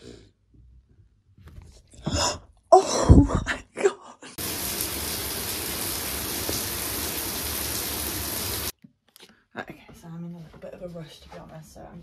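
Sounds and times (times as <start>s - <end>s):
water running into a sink: 4.4s - 8.7s.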